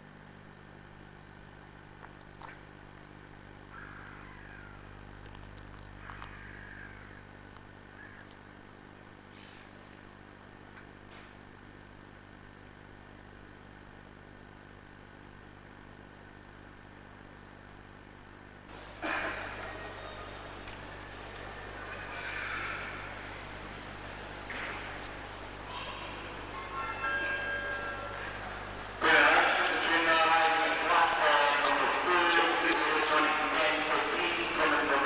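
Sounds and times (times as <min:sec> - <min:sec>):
diesel locomotive engine idling: 0:18.7 - 0:35.0.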